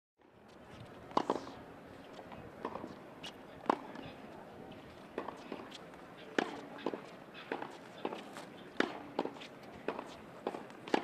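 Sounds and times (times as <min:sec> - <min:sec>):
tennis ball bounces: 0:01.1 - 0:04.2, 0:05.1 - 0:11.0
racquets hitting tennis balls: 0:02.2 - 0:04.0, 0:05.1 - 0:11.0.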